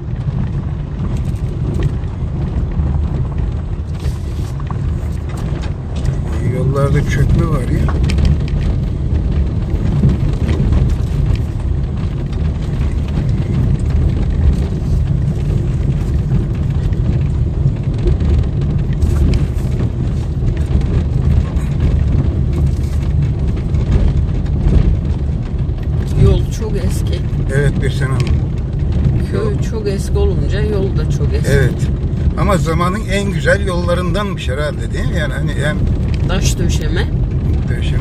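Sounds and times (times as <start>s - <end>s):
car tyres rumbling on stone road: 0.0s - 38.0s
small knocks and rattles: 7.2s - 26.5s.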